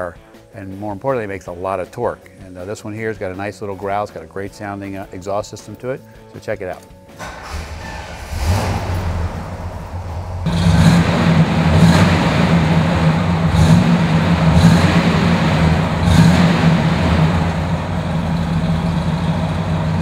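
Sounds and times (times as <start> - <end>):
car engine starting and revving: 7.2 - 20.0.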